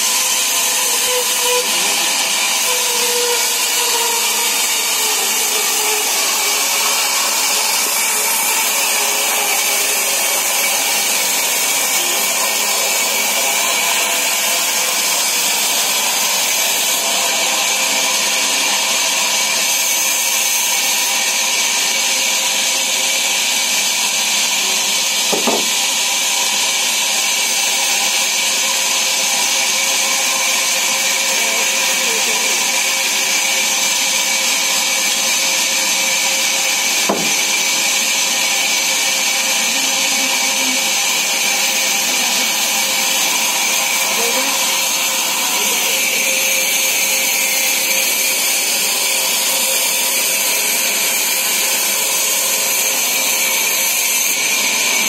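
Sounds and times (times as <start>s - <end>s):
band saw whirring: 0.0s - 55.0s
short knocks: 25.3s - 25.7s, 37.1s - 37.5s.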